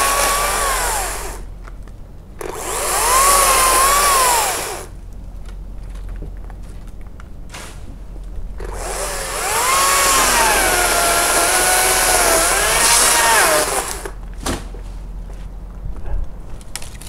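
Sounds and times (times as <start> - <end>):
electric chainsaw cutting wood: 0.0 - 1.5, 2.4 - 4.9, 8.6 - 14.2.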